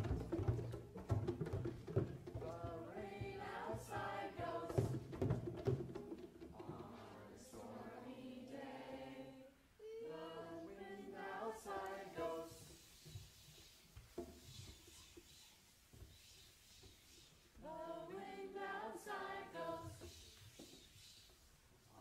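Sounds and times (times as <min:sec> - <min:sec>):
hand drum taps: 0:00.0 - 0:06.8
group of voices singing softly: 0:02.2 - 0:05.3, 0:06.5 - 0:15.4, 0:16.1 - 0:22.0.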